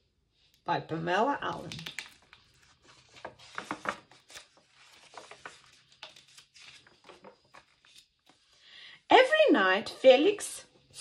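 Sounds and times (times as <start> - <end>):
book pages rustling: 1.5 - 8.6.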